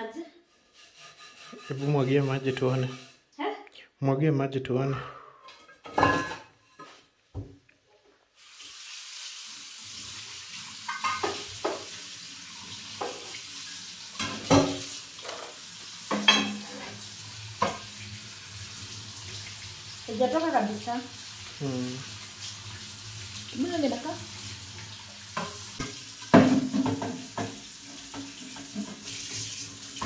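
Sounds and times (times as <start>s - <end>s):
pan clattering in sink: 5.5s - 7.0s, 10.8s - 12.0s, 13.0s - 13.4s, 14.1s - 17.9s, 25.3s - 29.4s
water splashing onto pan: 8.4s - 30.0s.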